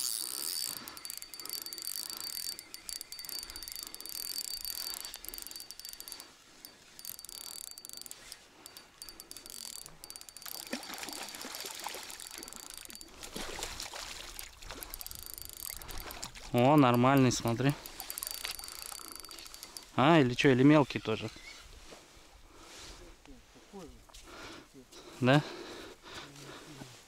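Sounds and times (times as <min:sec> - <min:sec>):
fishing reel whirring and clicking: 0:00.0 - 0:20.1.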